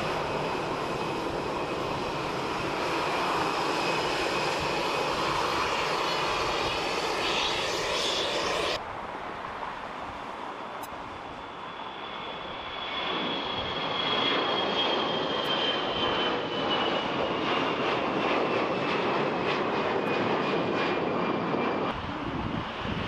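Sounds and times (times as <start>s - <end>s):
jet airliner roar: 0.0s - 23.0s.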